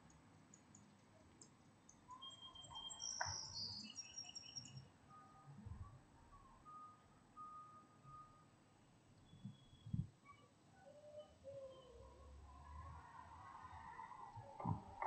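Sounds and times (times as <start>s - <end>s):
birds chirping: 1.8s - 4.9s
distant traffic rumble: 10.8s - 15.0s.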